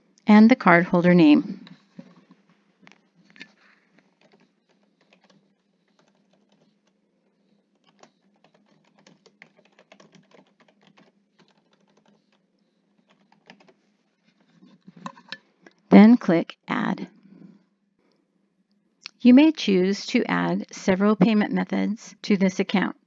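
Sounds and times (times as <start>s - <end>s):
faint keyboard typing: 1.5s - 15.8s.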